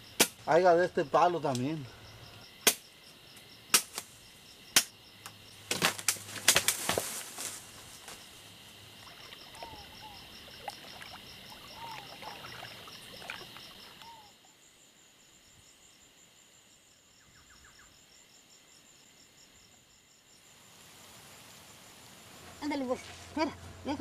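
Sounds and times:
insects chirping: 0.0 - 24.0.

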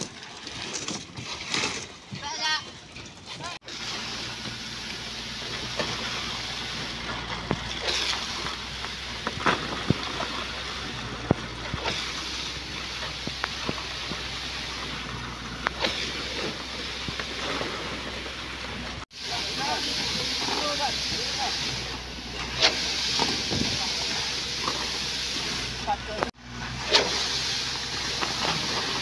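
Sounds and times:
concrete pump hissing: 3.6 - 17.7, 19.1 - 29.0
shovels scraping wet concrete: 5.4 - 12.8, 15.6 - 18.1, 19.4 - 29.0.

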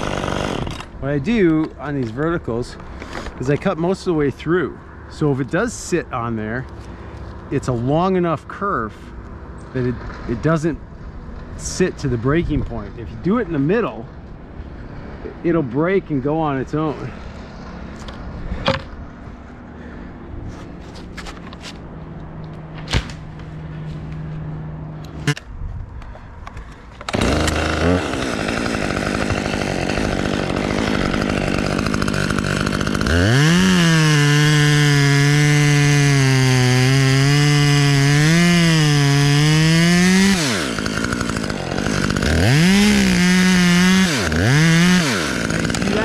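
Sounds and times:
chainsaw revving: 0.0 - 4.2, 14.6 - 18.4, 27.0 - 46.0.

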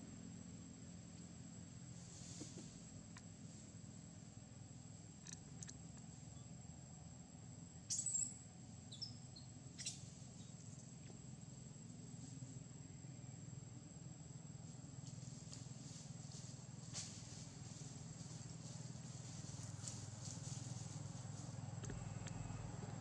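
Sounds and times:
low hum: 9.2 - 23.0.

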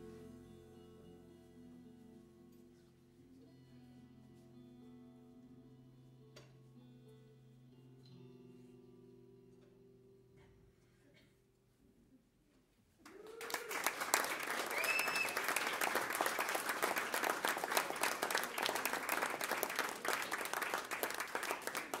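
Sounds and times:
short cheers: 13.0 - 20.5
audience applause: 13.0 - 22.0.

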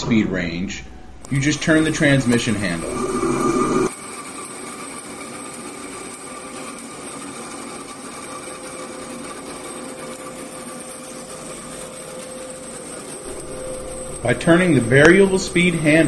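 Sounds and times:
bandsaw humming with whine: 1.1 - 3.9, 12.4 - 16.0.

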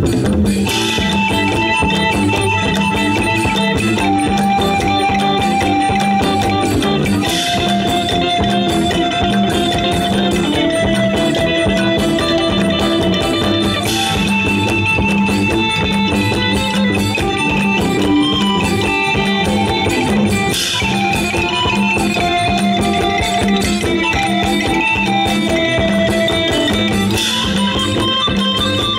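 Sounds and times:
live folk band playing: 0.0 - 28.9.

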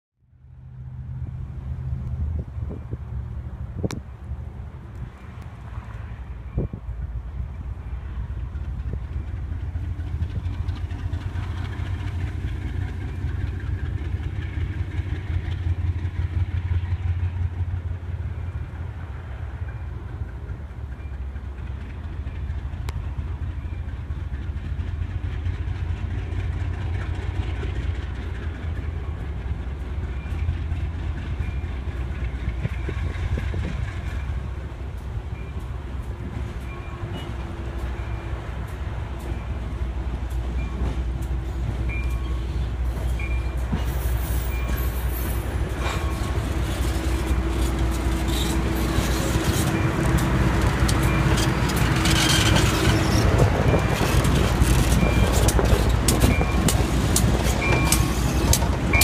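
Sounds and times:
diesel locomotive engine running: 0.2 - 59.0.

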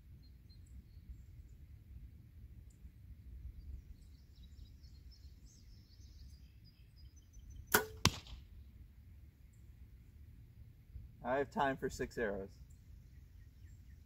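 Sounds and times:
birds chirping faintly: 0.0 - 14.0
arrow striking target: 7.7 - 8.5
bowstring release crack: 7.7 - 8.5.

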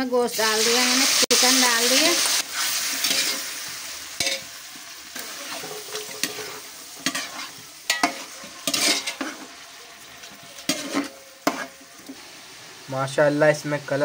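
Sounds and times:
chicken sizzling in hot oil: 0.0 - 14.0
metal spoon scraping pot: 5.2 - 9.4, 10.7 - 11.8.

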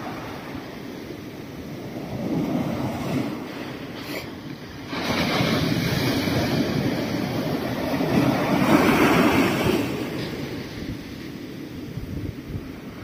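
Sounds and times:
surf breaking on beach: 0.0 - 13.0.

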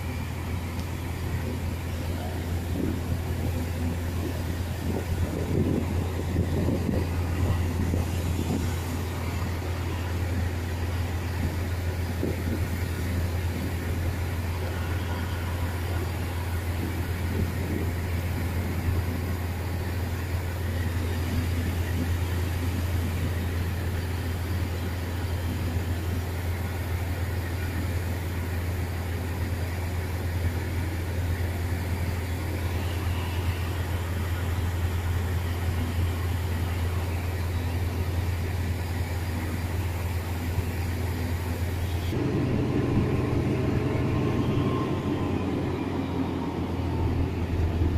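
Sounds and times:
diesel train engine idling: 0.0 - 47.9.

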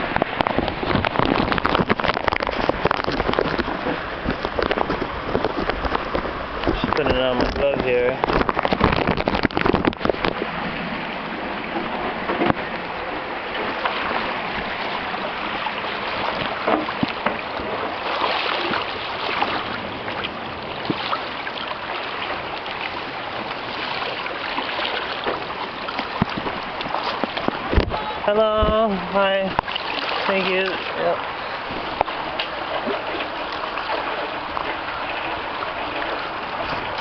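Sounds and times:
river water rushing and splashing: 0.0 - 37.0.

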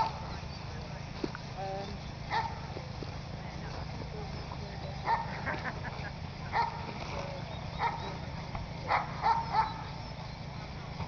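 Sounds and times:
dog barking: 2.3 - 2.7, 5.0 - 5.5, 6.5 - 6.9, 7.8 - 8.2, 8.9 - 10.0.

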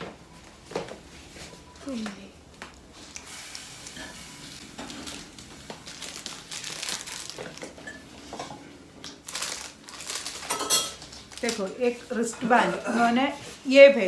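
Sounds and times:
packaging crinkling and rustling: 2.9 - 8.4, 9.0 - 12.3.

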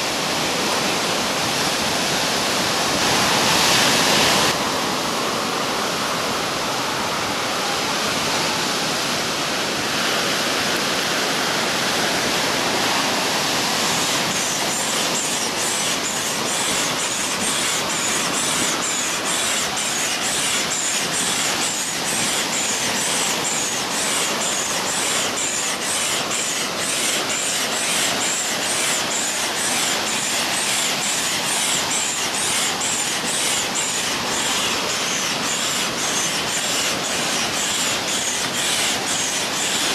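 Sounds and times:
air pump hissing through hose: 12.2 - 39.9.

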